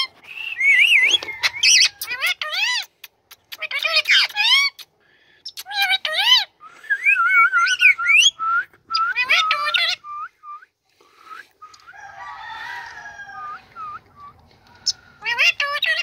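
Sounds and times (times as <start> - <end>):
parakeet soft chatter: 14.8 - 16.0.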